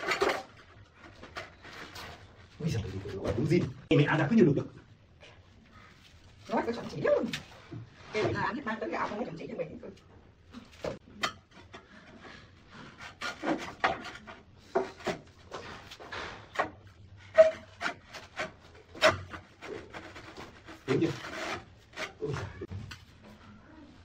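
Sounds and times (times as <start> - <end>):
scraper scraping concrete wall: 12.0 - 22.7.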